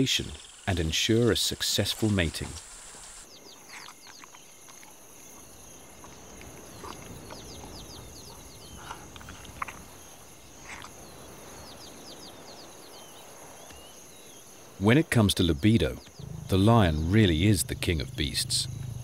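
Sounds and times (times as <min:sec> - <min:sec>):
high insect drone: 0:00.0 - 0:19.0
falling chirps: 0:15.6 - 0:19.0
sharp animal calls: 0:16.2 - 0:19.0.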